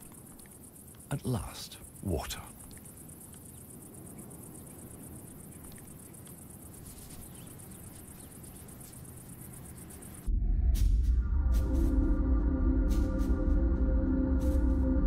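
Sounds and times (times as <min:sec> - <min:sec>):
high-pitched insect trill: 0:00.0 - 0:10.3
faint low rumble: 0:09.5 - 0:15.0.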